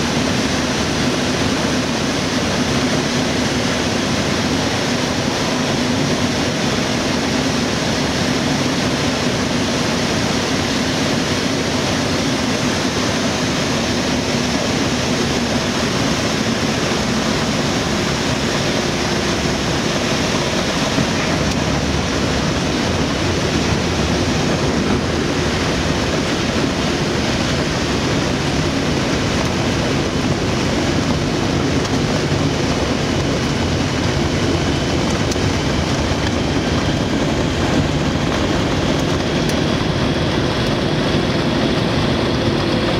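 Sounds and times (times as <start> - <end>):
light aircraft engine drone: 0.0 - 42.9
rushing air noise: 0.0 - 42.9.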